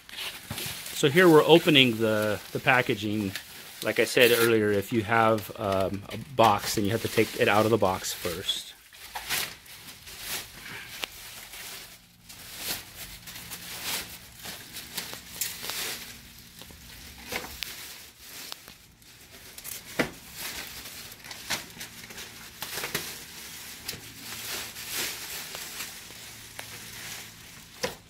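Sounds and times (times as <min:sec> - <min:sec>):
plastic film crinkling: 0:00.0 - 0:28.0.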